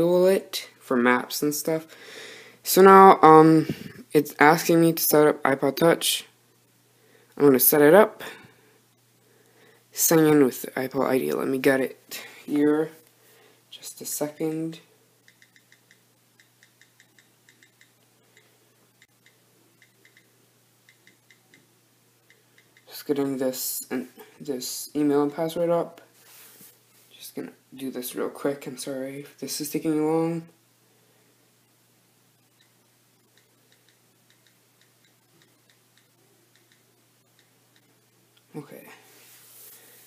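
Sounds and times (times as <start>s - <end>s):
faint on-screen keyboard clicks: 15.2s - 22.9s, 32.5s - 38.5s.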